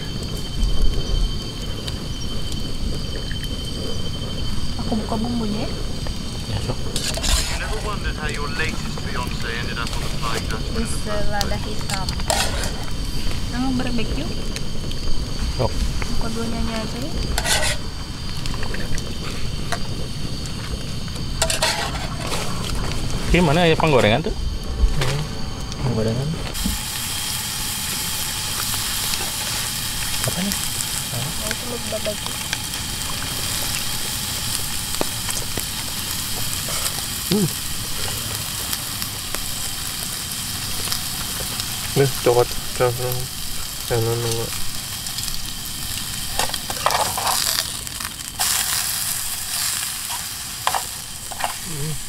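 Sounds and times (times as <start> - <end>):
food sizzling in a pot: 0.0 - 52.0
gas stove burner rushing: 25.8 - 51.7.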